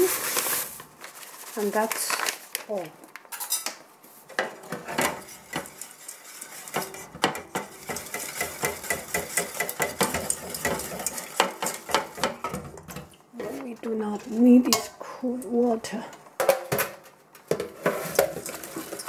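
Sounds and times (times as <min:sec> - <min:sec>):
whisk scraping metal saucepan: 0:04.4 - 0:12.7.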